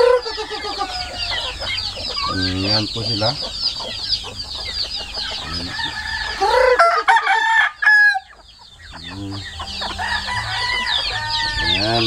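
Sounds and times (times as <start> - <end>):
rooster crowing: 0.0 - 1.9, 5.4 - 12.0
high chirping: 0.0 - 6.7, 8.2 - 12.0
chickens clucking: 0.0 - 12.0.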